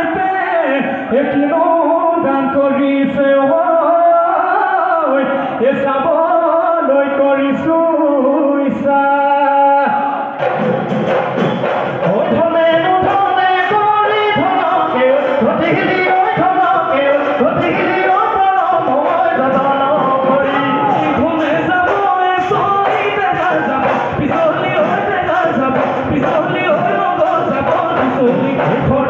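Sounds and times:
dhol drums: 10.3 - 29.0
men singing in chorus: 12.0 - 29.0.

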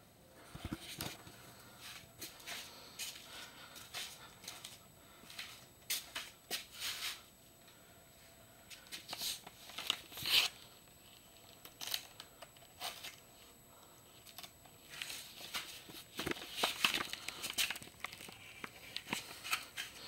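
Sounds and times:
hands handling objects: 14.2 - 20.0.

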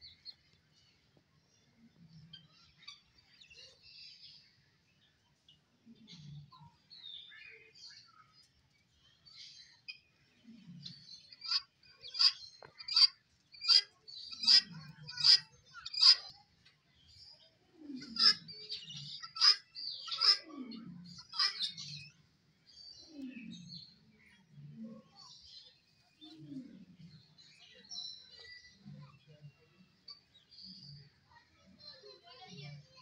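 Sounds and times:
guinea fowl harsh calls: 11.4 - 16.2, 18.0 - 22.0.

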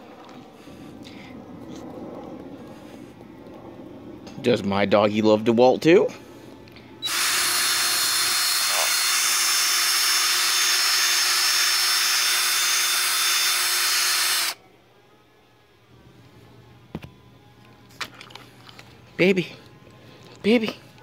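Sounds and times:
power tool running: 7.0 - 14.6.

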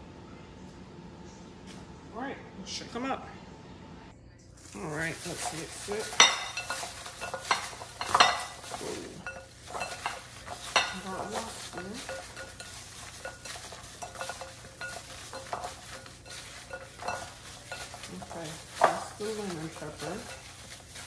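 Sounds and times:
chicken wings squishing in bowl: 5.0 - 21.0.

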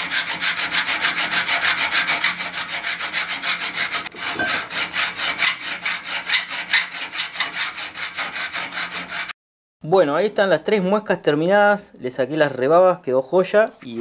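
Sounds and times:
hand file rasping on steel: 0.0 - 9.4.

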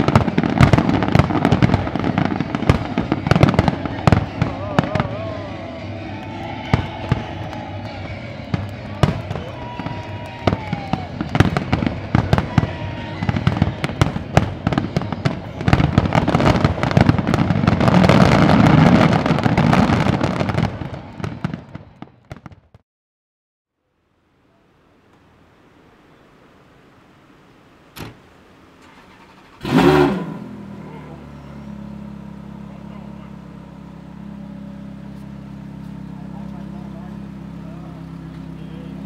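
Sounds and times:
fireworks whistling: 0.0 - 22.6
fireworks bangs and crackling: 0.0 - 22.8.

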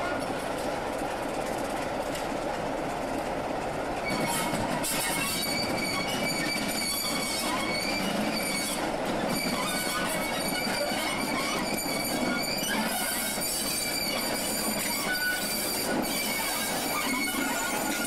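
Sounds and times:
diesel locomotive engine: 0.0 - 18.0
train wheels squealing: 4.0 - 18.0.

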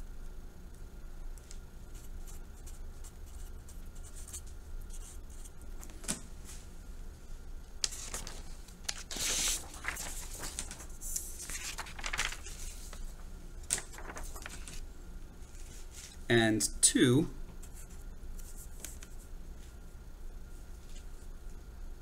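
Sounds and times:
paper sheets rustling: 7.8 - 16.2, 17.6 - 19.8.

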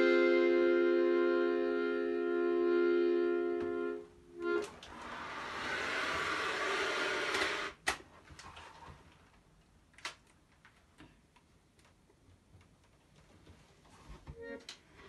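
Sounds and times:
button accordion playing: 0.0 - 7.6.

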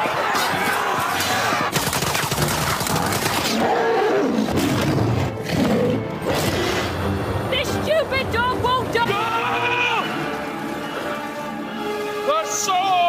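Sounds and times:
crowd running in panic: 0.0 - 3.7
giant wolf snarling: 2.6 - 7.1.

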